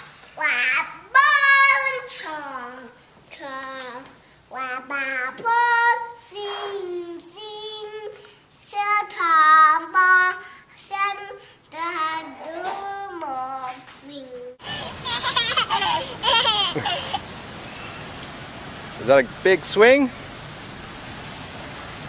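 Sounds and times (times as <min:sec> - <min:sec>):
toddler singing wordlessly: 0:00.4 - 0:14.8.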